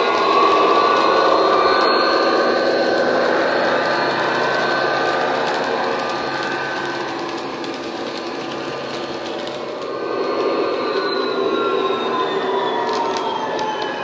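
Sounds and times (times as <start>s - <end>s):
held tones gliding down: 0.0s - 14.0s.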